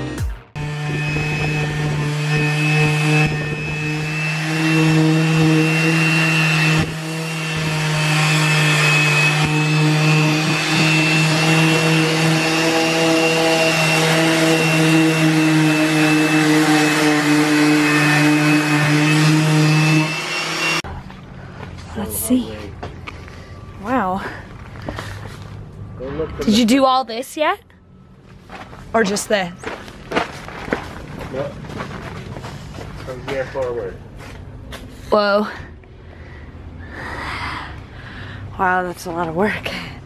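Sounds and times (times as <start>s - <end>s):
orbit sander running: 0.0s - 21.8s
motor hum with high whine: 0.6s - 26.4s.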